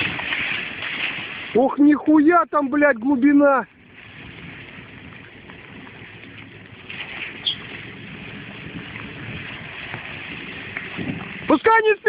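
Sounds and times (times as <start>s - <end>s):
water washing: 0.0s - 12.0s
wind noise: 0.0s - 12.0s
vehicle engine running: 3.7s - 11.6s.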